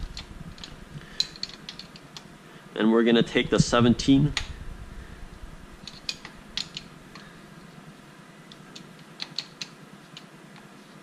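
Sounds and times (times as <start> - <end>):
wrenches clicking on metal: 8.7 - 9.7.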